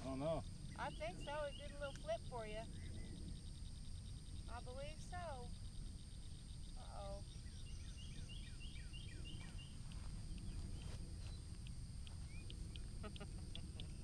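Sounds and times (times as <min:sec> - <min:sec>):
steady low rumble: 0:00.0 - 0:14.0.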